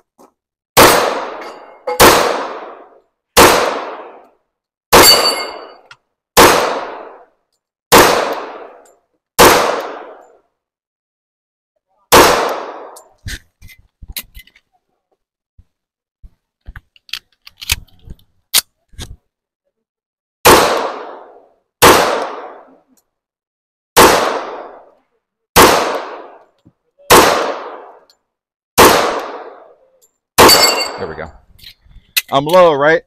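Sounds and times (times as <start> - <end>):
gunshots with echo: 0.8 - 4.2, 6.4 - 7.2, 7.9 - 8.8, 9.4 - 10.2, 12.1 - 13.0, 20.4 - 22.7, 24.0 - 24.8, 25.6 - 26.4, 27.1 - 28.0, 28.8 - 29.7, 30.4 - 31.0.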